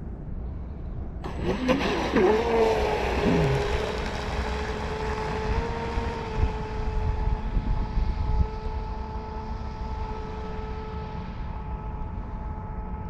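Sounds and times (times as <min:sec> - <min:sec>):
electric motor whining: 0:01.2 - 0:11.0.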